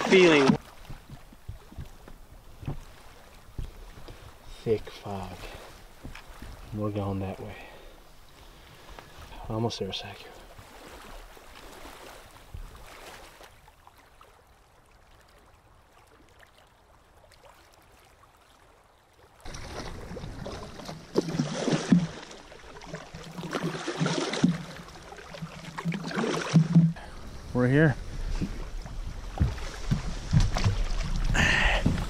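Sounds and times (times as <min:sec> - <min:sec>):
water splashing around canoe: 0:00.0 - 0:32.0.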